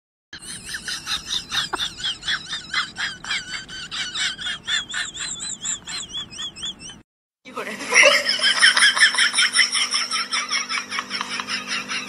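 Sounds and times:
hen squawking: 0.4 - 7.0.

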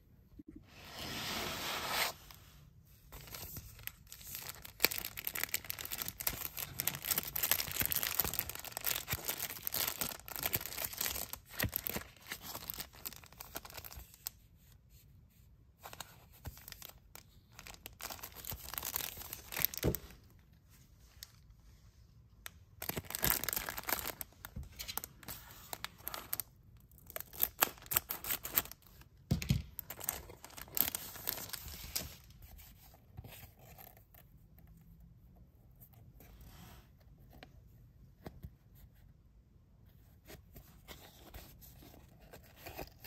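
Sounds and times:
plastic packaging crinkling and tearing: 3.3 - 14.3, 16.4 - 20.1, 22.8 - 29.0, 29.8 - 32.3.

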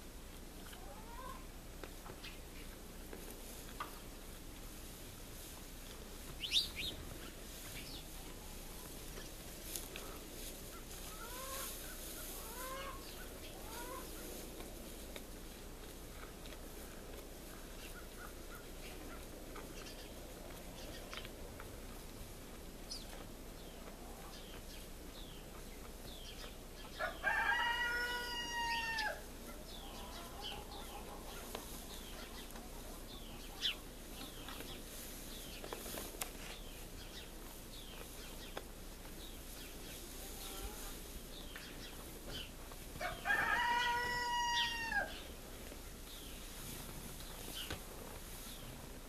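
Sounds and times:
cattle chewing hay: 2.7 - 26.6, 45.3 - 49.0
rooster crowing: 27.0 - 29.2, 43.0 - 45.2.

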